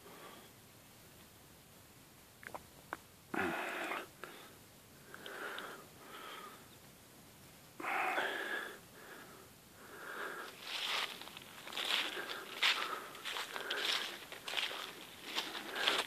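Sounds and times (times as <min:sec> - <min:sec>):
person breathing: 0:00.0 - 0:00.6, 0:03.3 - 0:06.7, 0:07.8 - 0:16.0.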